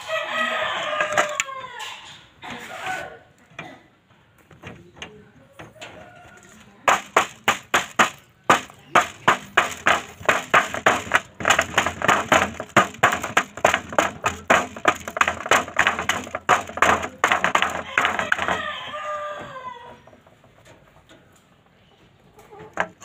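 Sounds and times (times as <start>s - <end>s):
rooster crowing: 0.0s - 2.1s, 17.5s - 20.1s
beak pecking on metal basin: 6.3s - 18.8s.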